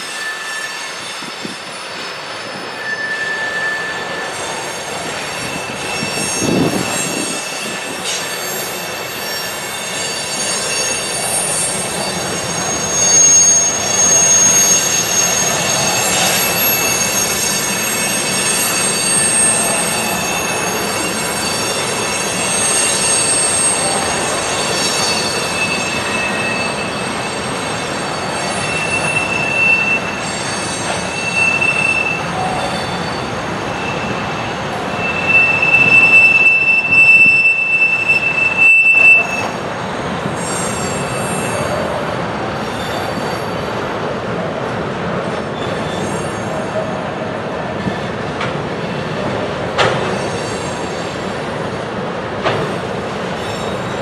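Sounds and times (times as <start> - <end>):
train rolling rumble: 0.0 - 54.0
train wheels squealing on rails: 0.0 - 54.0.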